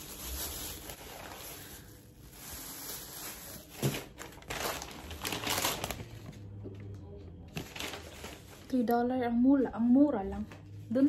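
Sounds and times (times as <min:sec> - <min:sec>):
plastic bags rustling: 0:00.0 - 0:06.6, 0:07.5 - 0:09.1.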